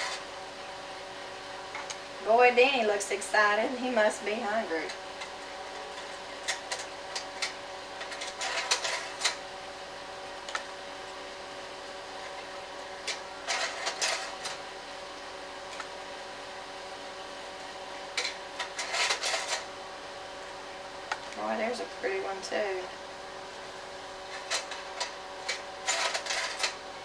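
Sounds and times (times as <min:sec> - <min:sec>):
slide projector humming: 0:00.0 - 0:27.0.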